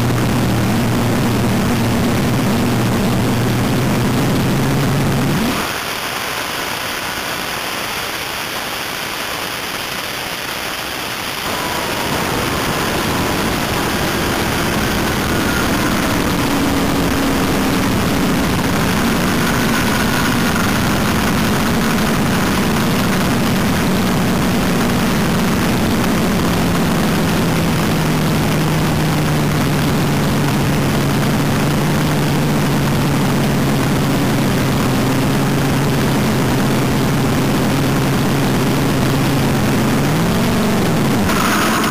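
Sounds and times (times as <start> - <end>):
dragster engine at low revs: 0.0 - 5.9, 11.5 - 41.9
wind rushing over microphone: 11.4 - 41.9.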